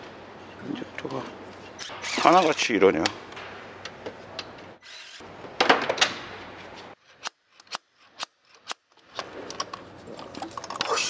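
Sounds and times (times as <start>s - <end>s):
metal parts scraping: 1.8s - 2.7s, 4.8s - 5.2s
sharp clicks of tools: 7.0s - 9.8s.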